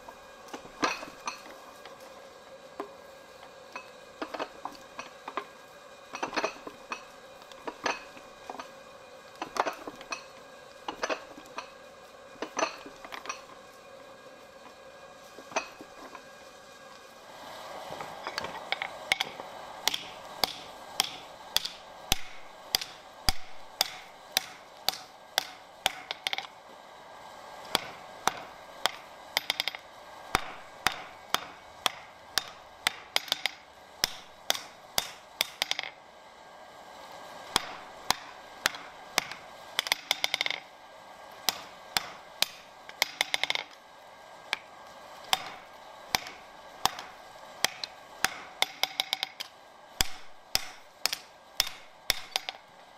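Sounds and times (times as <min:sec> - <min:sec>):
hammer striking steel on anvil: 0:18.2 - 0:26.5, 0:27.7 - 0:36.0, 0:37.5 - 0:40.7, 0:41.4 - 0:43.8, 0:45.3 - 0:52.6.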